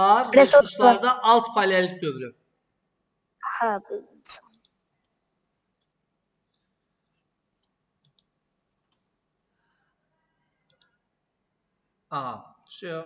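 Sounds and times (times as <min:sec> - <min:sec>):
computer mouse clicks: 0:07.6 - 0:09.1, 0:10.6 - 0:11.0.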